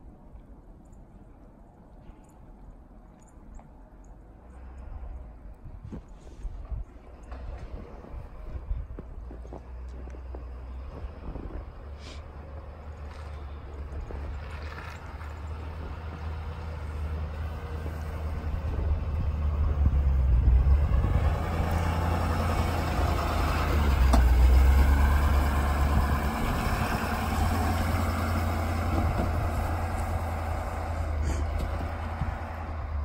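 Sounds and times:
diesel truck engine running: 7.0s - 33.0s.

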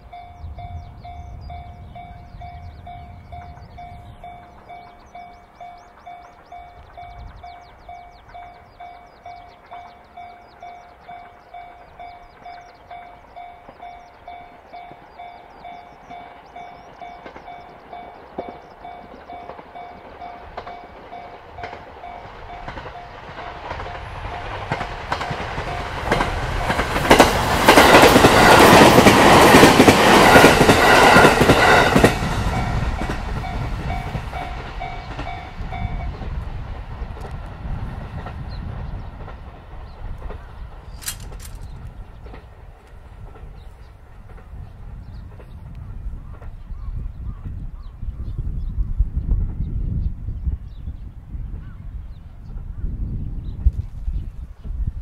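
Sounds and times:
level crossing warning bell: 0.0s - 36.4s
train passing with loud rush: 0.0s - 55.0s
train wheels clickety-clack: 0.1s - 47.6s.

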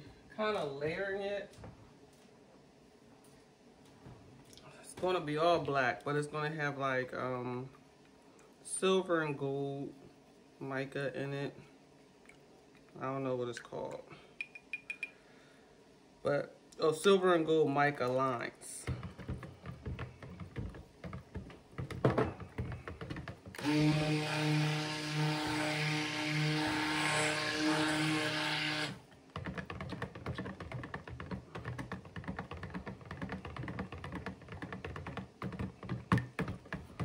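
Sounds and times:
blender head tapping plastic pitcher: 18.9s - 24.0s
immersion blender running: 23.0s - 29.0s.

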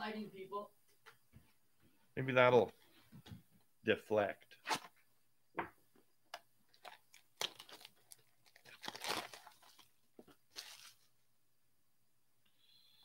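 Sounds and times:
plastic wrap crinkling and tearing: 6.7s - 11.1s.

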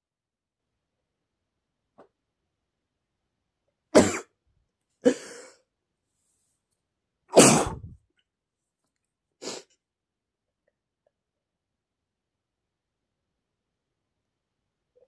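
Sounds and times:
man sneezing: 4.0s - 4.3s, 7.3s - 8.0s.

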